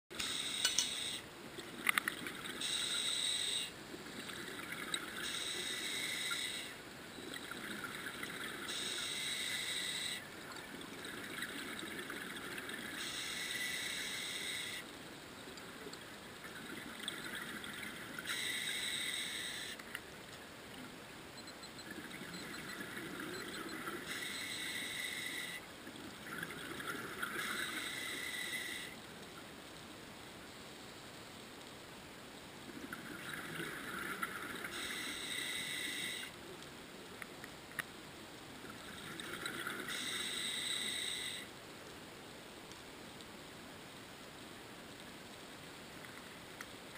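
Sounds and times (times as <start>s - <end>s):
exhaled bubbles underwater: 21.9s - 29.0s.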